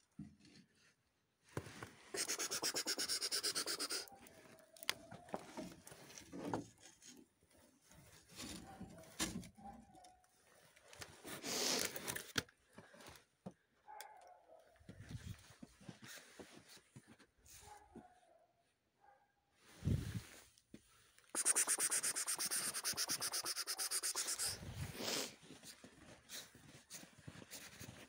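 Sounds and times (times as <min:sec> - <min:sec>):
rapid rasping: 0:02.2 - 0:04.1, 0:21.3 - 0:24.6.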